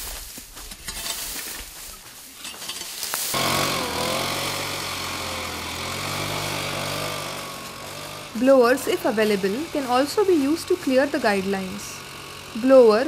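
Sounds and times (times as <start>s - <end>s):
branches scraping through dry leaves: 0.0s - 4.0s
leaf blower engine running: 3.2s - 13.0s.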